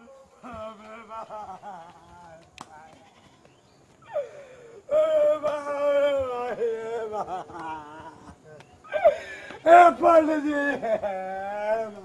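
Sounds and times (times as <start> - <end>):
person wailing: 4.1 - 8.3.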